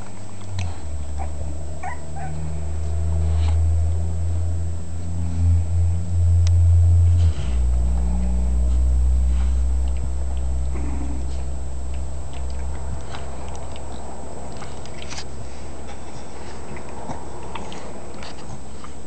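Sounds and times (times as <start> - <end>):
loud steady low hum: 0.0 - 19.0
puppies squeaking and whimpering: 1.0 - 2.6.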